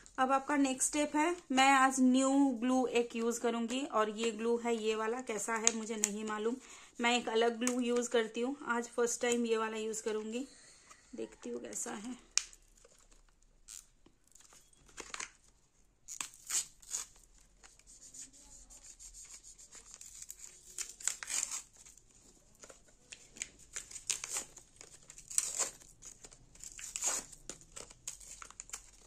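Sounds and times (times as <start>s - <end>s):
packaging tearing and crinkling: 12.3s - 15.5s, 16.1s - 17.7s, 19.7s - 29.0s.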